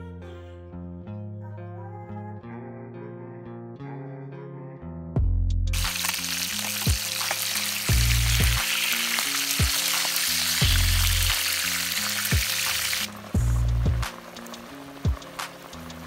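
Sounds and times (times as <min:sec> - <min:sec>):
fish sizzling in hot oil: 0:05.7 - 0:16.0
background music with bass beat: 0:13.3 - 0:16.0.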